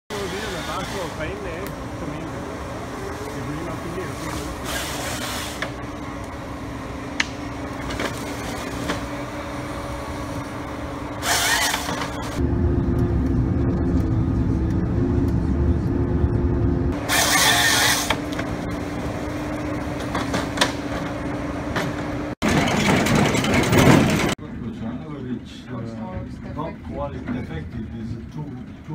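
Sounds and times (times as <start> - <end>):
harvester engine droning: 0.1 - 28.9
loud broad machinery noise: 0.1 - 28.9
heavy low rumble: 12.3 - 17.0.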